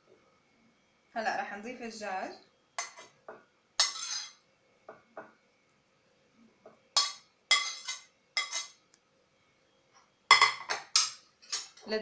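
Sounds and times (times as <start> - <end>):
dishes clinking and scraping: 2.8 - 4.4, 7.0 - 8.8, 10.3 - 12.0.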